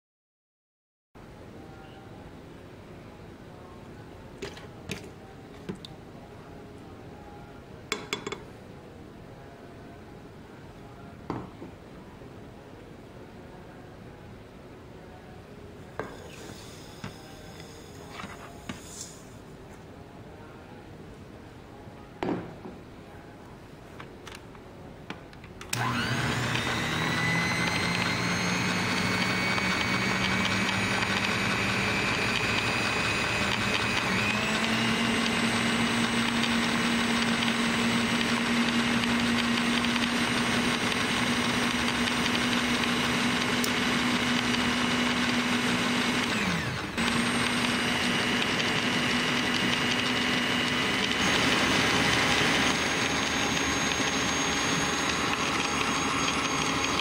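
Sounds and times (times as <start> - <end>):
electric mixer whining: 25.7 - 57.0.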